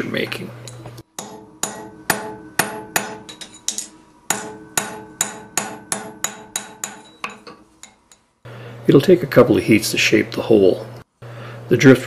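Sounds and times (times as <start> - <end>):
hammer ringing on steel: 0.7 - 8.0.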